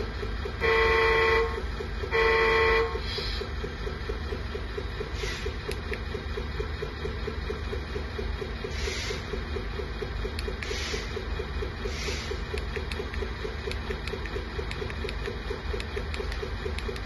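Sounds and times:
simulated diesel engine idle: 0.0 - 17.0
truck horn blasts: 0.6 - 3.1.

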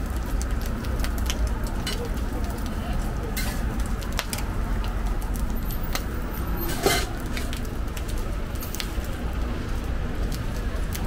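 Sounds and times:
ham frying: 0.0 - 11.0
spatula scraping on griddle: 3.3 - 3.8, 6.4 - 7.6.

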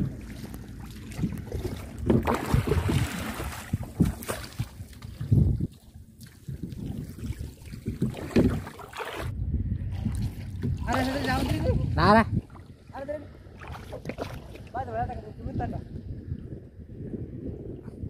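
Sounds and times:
water lapping around boat: 0.0 - 18.0
wind buffeting microphone: 0.0 - 18.0.

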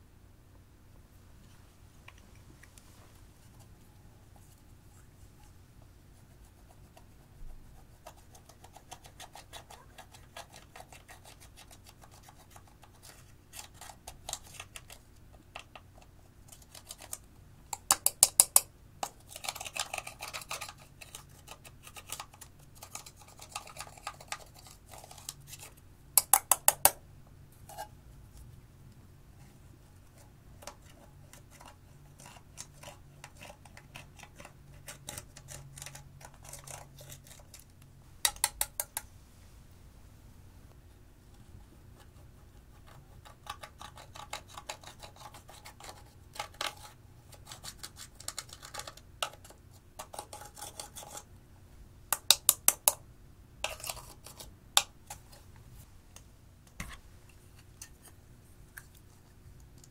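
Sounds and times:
tool scratching powder in plastic pan: 42.0 - 51.3, 53.6 - 54.5.

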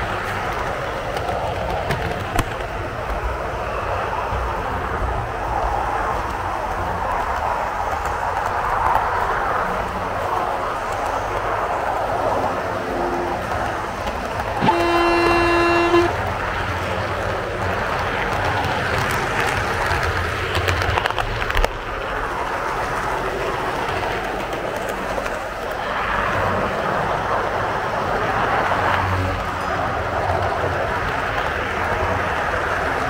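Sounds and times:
train clattering: 0.0 - 33.0
train coaches rumbling on rails: 0.0 - 33.0
train horn blast: 14.6 - 16.9.

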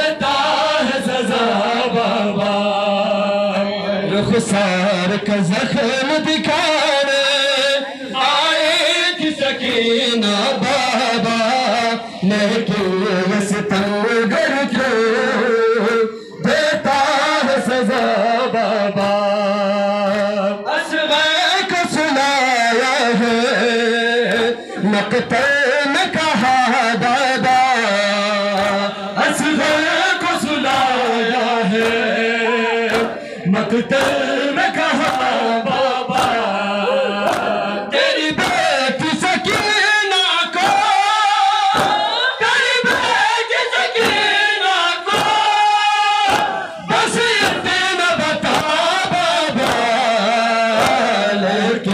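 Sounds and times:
voices singing a lament: 0.0 - 51.9
chest-beating slaps: 28.5 - 28.9, 29.6 - 29.9, 30.6 - 32.1, 32.8 - 33.2, 33.9 - 34.3, 35.0 - 35.4, 36.1 - 36.5, 37.2 - 37.6, 39.4 - 39.8, 40.6 - 40.9, 41.7 - 42.1, 42.9 - 43.2, 44.0 - 44.3, 45.1 - 45.5, 46.3 - 46.6, 47.4 - 47.7, 48.4 - 50.0, 50.7 - 51.2.

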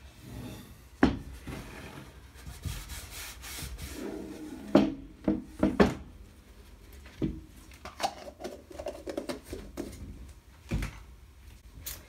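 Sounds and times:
cloth rubbing wax on wood: 2.4 - 4.5.

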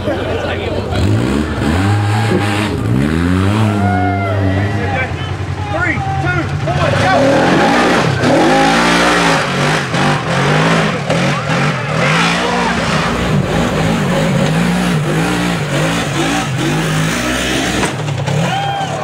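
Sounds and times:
engine revving under load: 0.7 - 5.6, 6.4 - 19.0.

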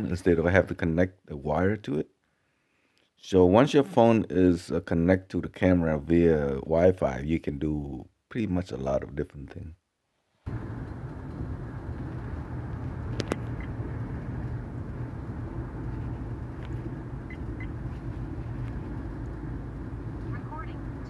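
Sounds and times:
minivan cabin rumble: 10.5 - 21.0.

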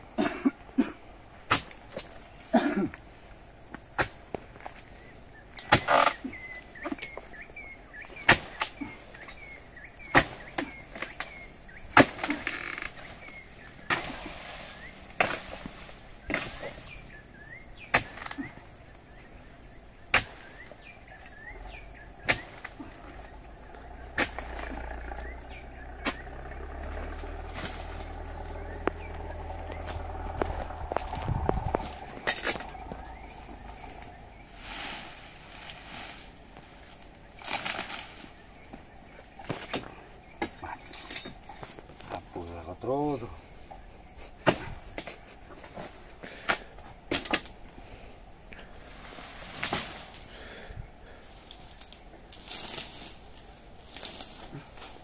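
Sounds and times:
high insect whine: 0.0 - 55.0
chisel chopping palm frond: 4.0 - 4.2, 5.6 - 6.2, 8.1 - 8.8, 10.0 - 12.6, 13.8 - 14.4, 15.1 - 16.8, 17.8 - 18.4, 20.1 - 20.6, 22.2 - 22.7, 24.1 - 24.7.

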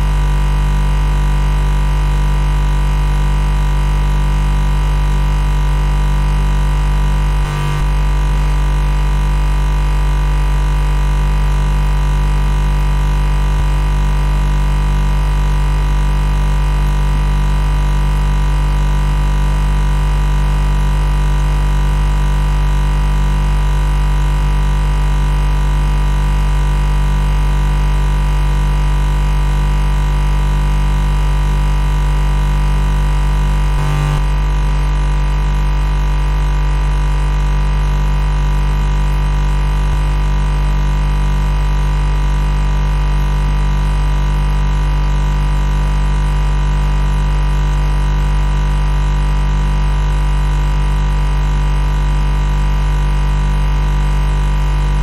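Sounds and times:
refrigerator compressor humming: 32.3 - 41.8.

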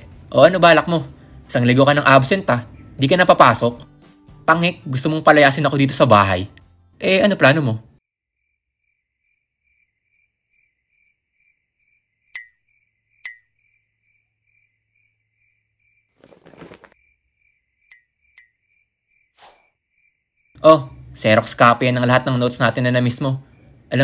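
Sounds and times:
crickets chirping: 8.4 - 24.0
backpack rustling: 16.2 - 17.0.

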